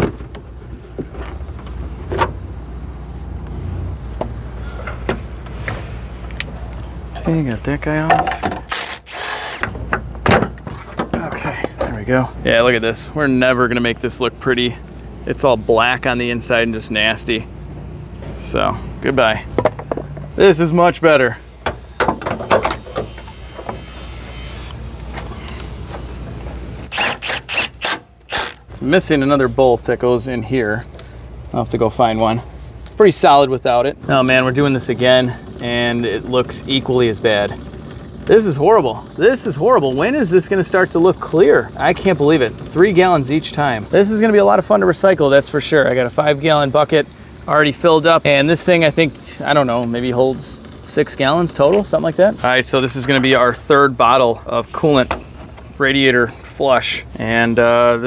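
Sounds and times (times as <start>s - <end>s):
steady low hum: 0.1s - 58.0s
steady hiss: 32.6s - 58.0s.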